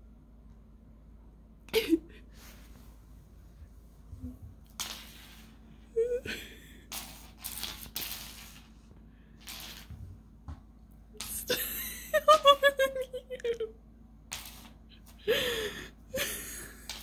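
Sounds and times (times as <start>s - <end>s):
person laughing breathily: 5.9s - 6.9s, 11.3s - 13.7s, 14.9s - 17.0s.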